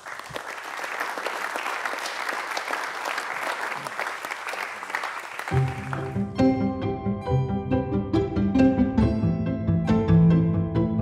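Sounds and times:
audience applauding: 0:00.0 - 0:06.4
music: 0:05.5 - 0:11.0.

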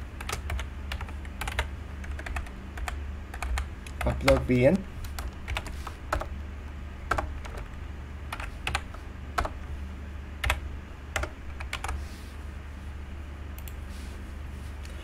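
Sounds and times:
low hum: 0:00.0 - 0:15.0
keyboard typing: 0:00.2 - 0:06.3, 0:07.1 - 0:09.7, 0:10.4 - 0:10.6, 0:11.2 - 0:12.0.

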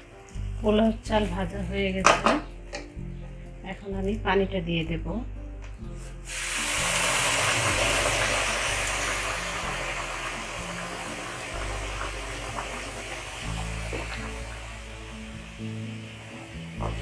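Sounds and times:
water hissing in hot wok: 0:06.1 - 0:17.0.

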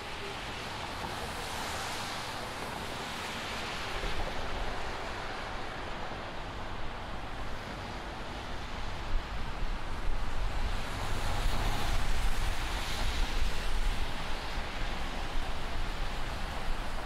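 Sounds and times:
traffic on wet roads: 0:00.0 - 0:17.0
wind rumble on microphone: 0:00.0 - 0:17.0.

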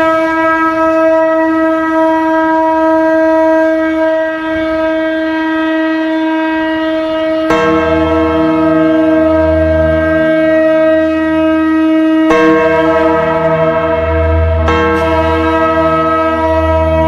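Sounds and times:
conch shell blown: 0:09.2 - 0:17.0.

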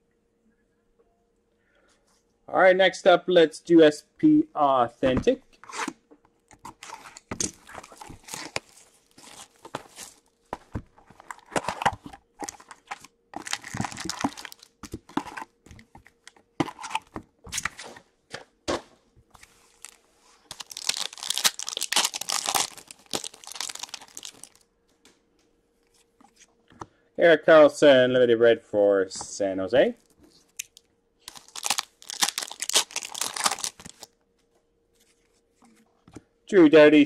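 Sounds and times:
foil pack crinkling and tearing: 0:06.7 - 0:10.4, 0:11.0 - 0:15.5, 0:19.5 - 0:24.6, 0:30.0 - 0:34.1.

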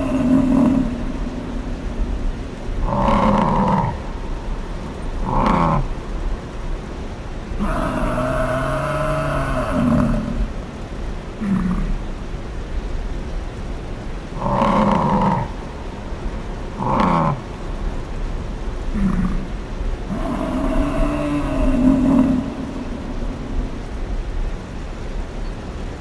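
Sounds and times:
water buffalo bellowing: 0:00.0 - 0:04.1, 0:05.2 - 0:06.0, 0:07.6 - 0:10.6, 0:14.4 - 0:15.6, 0:20.1 - 0:24.0.

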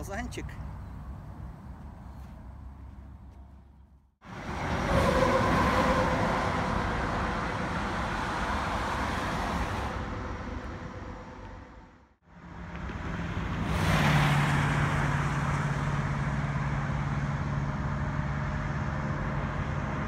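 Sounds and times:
highway traffic: 0:00.0 - 0:20.0.

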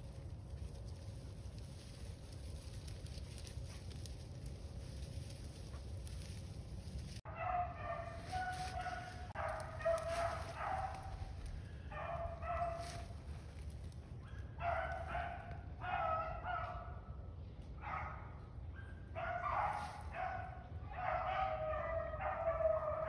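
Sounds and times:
hounds baying: 0:07.3 - 0:17.0, 0:17.8 - 0:23.0.

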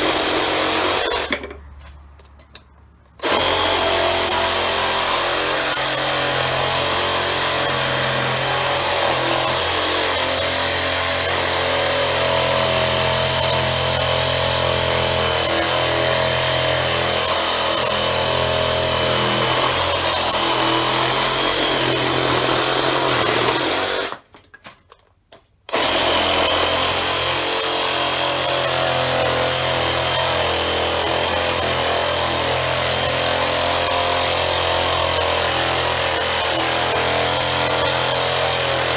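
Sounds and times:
reciprocating saw cutting wood: 0:00.0 - 0:01.4, 0:03.2 - 0:24.2, 0:25.7 - 0:38.9.

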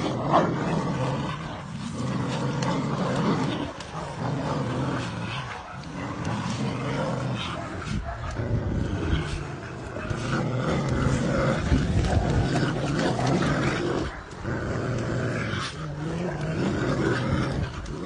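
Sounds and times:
dogs growling: 0:00.0 - 0:18.0.

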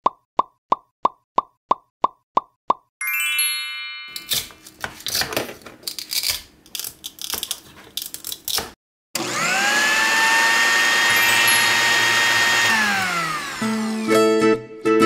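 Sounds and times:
toy knife cutting toy fruit: 0:06.0 - 0:08.8
toy blender motor whirring: 0:09.2 - 0:14.4.

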